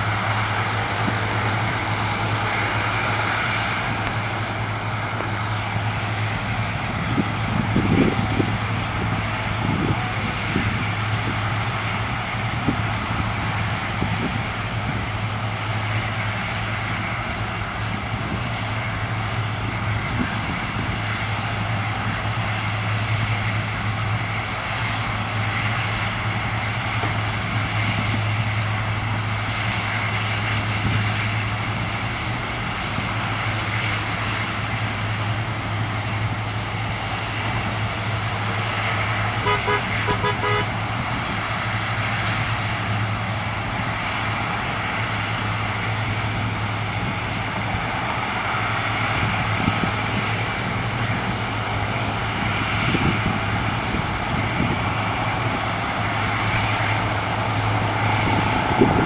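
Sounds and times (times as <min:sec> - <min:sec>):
jet engines roaring: 0:00.0 - 0:59.0.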